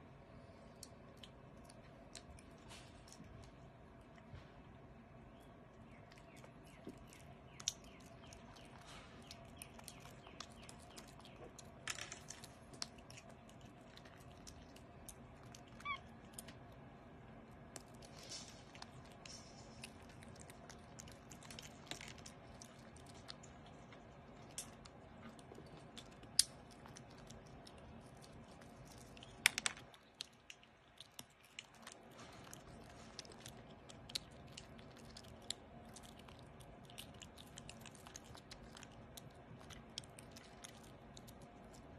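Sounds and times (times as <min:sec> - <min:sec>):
low steady hum: 0:00.0 - 0:41.9
monkey chewing: 0:05.9 - 0:41.9
monkey squeak: 0:15.8 - 0:16.1
small clicks and taps: 0:29.2 - 0:30.3.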